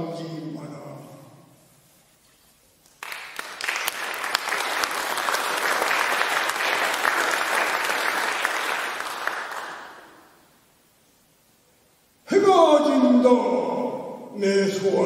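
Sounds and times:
audience applauding: 3.0s - 10.2s.

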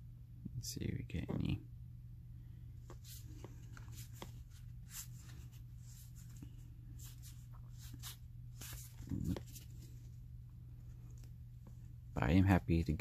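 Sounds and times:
low steady hum: 0.0s - 13.0s
trading cards sliding and flicking: 2.8s - 9.9s.

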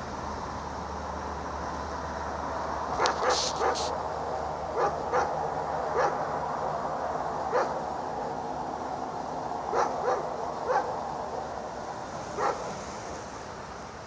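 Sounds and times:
steady background noise: 0.0s - 14.0s
dog barking: 3.0s - 3.9s, 4.7s - 6.3s, 7.5s - 8.4s, 9.7s - 11.5s, 12.4s - 12.8s.

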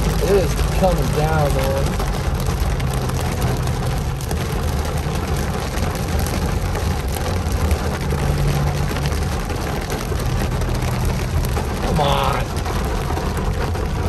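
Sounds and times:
car driving hum: 0.0s - 14.0s
heavy rain on car roof: 0.0s - 14.0s.

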